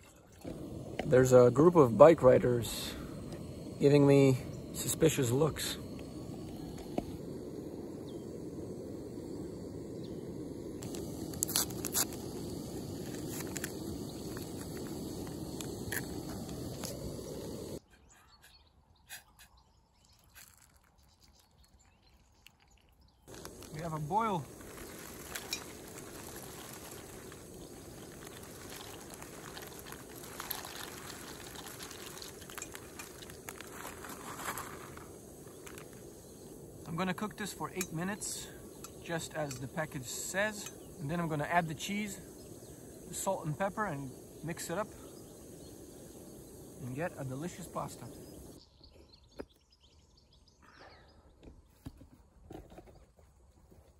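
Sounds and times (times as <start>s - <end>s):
camping stove burner rushing: 0.3s - 17.8s, 23.3s - 48.6s
dry pasta rattling into kettle: 23.3s - 35.9s
plastic bag crinkling: 23.3s - 36.0s.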